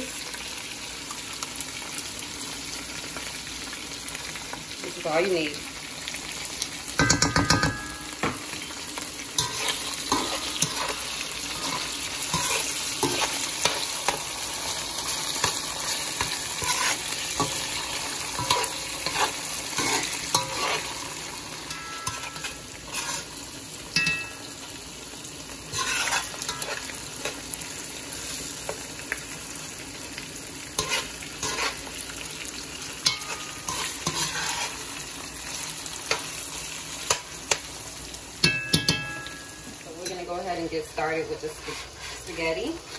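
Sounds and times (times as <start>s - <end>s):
food sizzling in a skillet: 0.0s - 42.9s
metal spoon scraping a pan: 9.4s - 24.5s, 25.7s - 27.6s, 30.8s - 32.0s, 33.0s - 36.4s, 38.4s - 42.9s.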